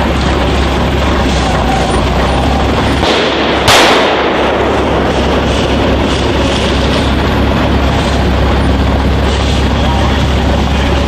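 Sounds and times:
steady rushing noise: 0.0 - 11.0
loud bang: 1.0 - 8.2.

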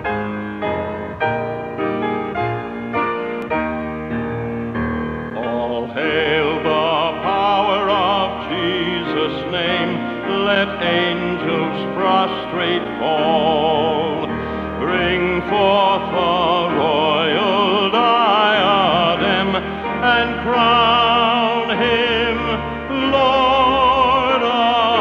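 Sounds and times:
hymn played on piano: 0.0 - 25.0
person singing with vibrato: 5.3 - 25.0.

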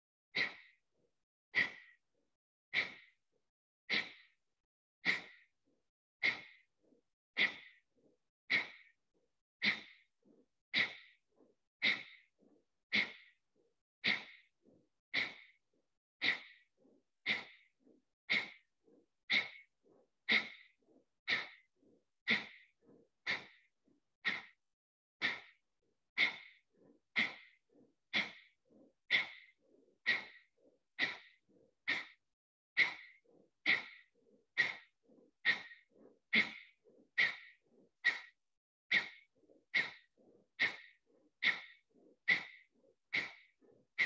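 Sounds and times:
faint inhales: 32.8 - 43.6.

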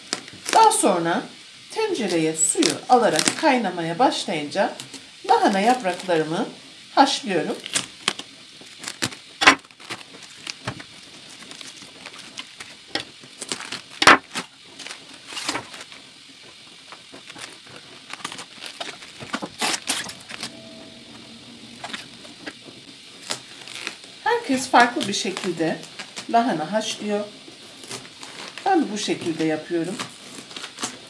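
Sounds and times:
cabbage leaves snapping: 7.6 - 16.0, 17.0 - 20.4, 29.2 - 31.0.

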